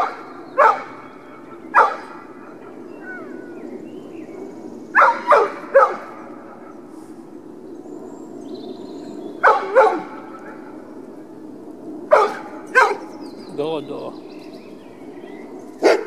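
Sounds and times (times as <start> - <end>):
dog barking: 0.0 - 0.9, 1.8 - 2.1, 5.0 - 6.1, 9.4 - 10.6, 12.1 - 13.0.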